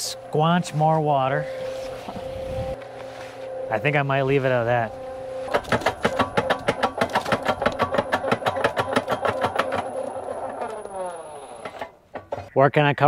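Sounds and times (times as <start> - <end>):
cement mixer humming: 0.0 - 12.6
fast even knocking: 5.5 - 10.6.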